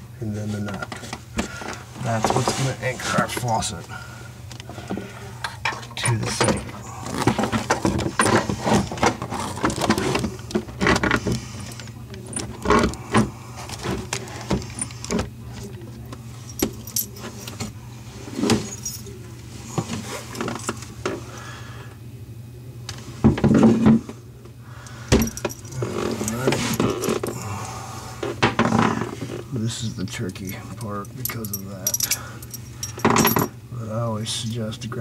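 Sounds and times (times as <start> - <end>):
small metal parts clinking: 25.2 - 27.4, 30.0 - 33.5.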